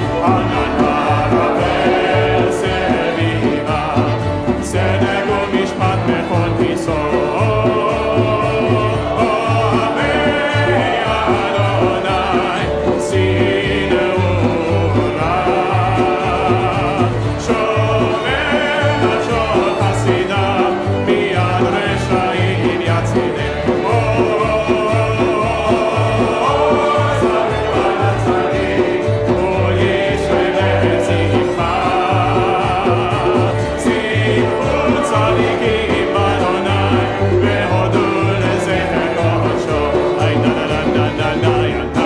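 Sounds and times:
acoustic guitar: 0.0 - 42.0
electric guitar: 0.0 - 42.0
group of voices singing: 0.0 - 42.0
hand drum: 0.0 - 42.0
plucked upright bass: 0.0 - 42.0.

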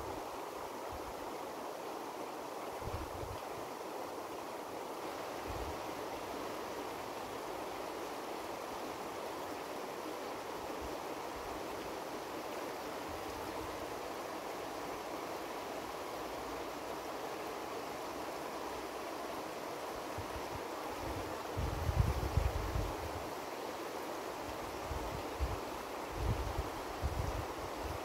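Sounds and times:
swift river rushing: 0.0 - 28.0.

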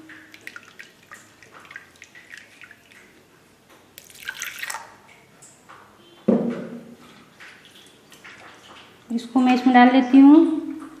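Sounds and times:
water sloshing in metal jar: 0.0 - 3.2.

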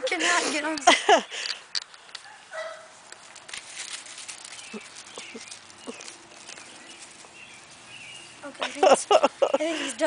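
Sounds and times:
puppy yipping: 2.2 - 2.9.

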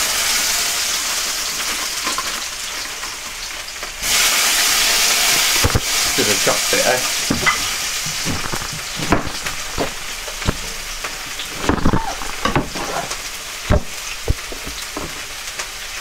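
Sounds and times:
chicken sizzling in a pan: 0.0 - 16.0
knife chopping on cutting board: 7.3 - 10.7.

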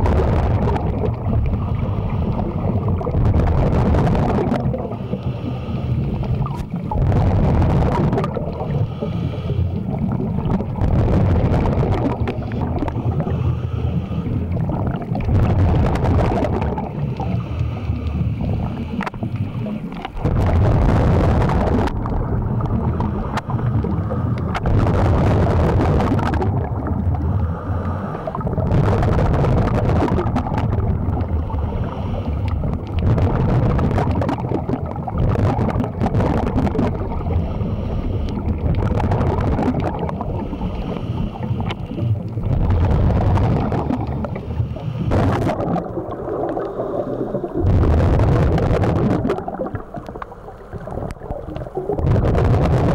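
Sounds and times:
scuba regulator exhaled bubbles: 0.0 - 52.9.

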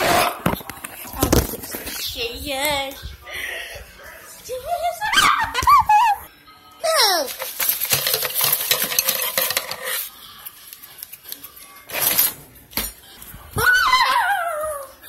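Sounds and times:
cutlery rattling in a drawer: 7.3 - 10.0, 11.9 - 12.4.

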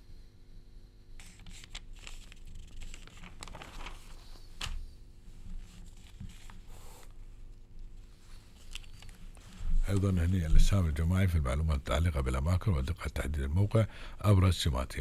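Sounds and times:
newspaper pages rustling: 1.2 - 6.9, 7.9 - 10.9.

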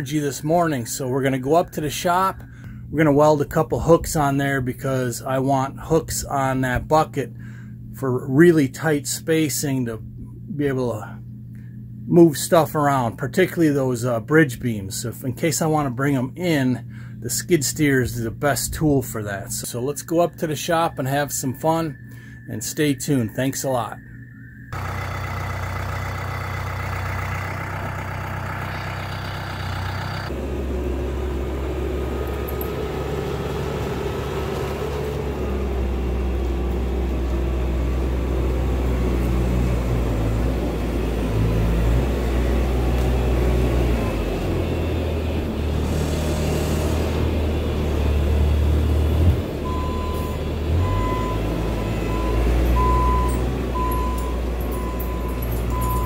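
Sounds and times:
diesel engine running: 0.0 - 14.0, 14.6 - 22.5, 24.7 - 56.0
backup alarm beeping: 19.7 - 26.8, 49.6 - 56.0.

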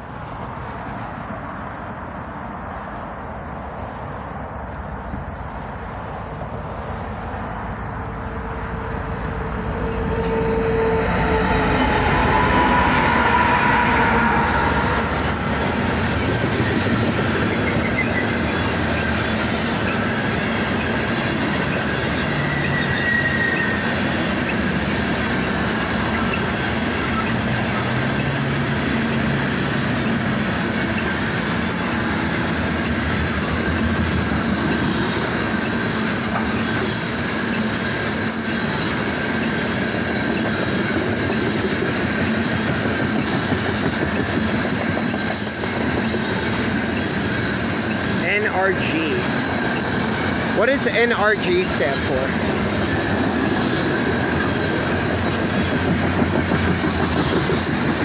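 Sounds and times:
diesel locomotives passing: 0.0 - 58.0
train wheels rumbling on rails: 0.0 - 58.0
wheel squeals: 10.2 - 24.7, 45.0 - 48.4.

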